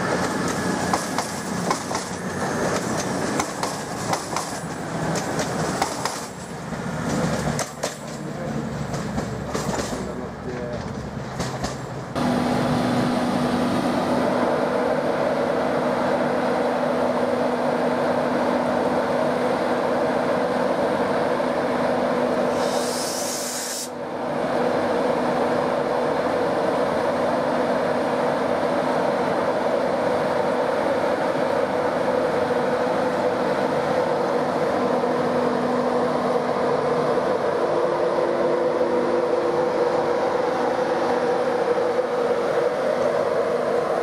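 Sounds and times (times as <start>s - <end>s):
electric locomotive humming: 0.0s - 44.0s
short hiss: 22.5s - 24.0s.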